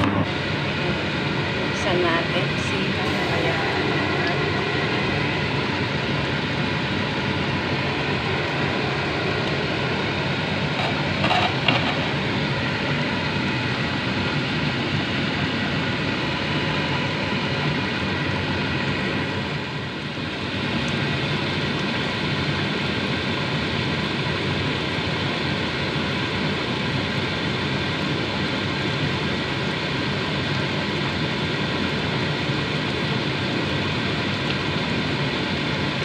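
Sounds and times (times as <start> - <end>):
steady rushing noise: 0.0 - 17.1
fish bubbling in oil: 0.0 - 36.0.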